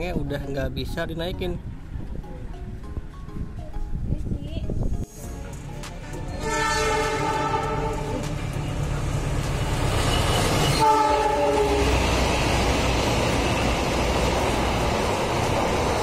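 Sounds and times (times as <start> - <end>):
train rumbling past: 0.0 - 16.0
locomotive horn blasts: 6.3 - 8.2, 10.7 - 12.0.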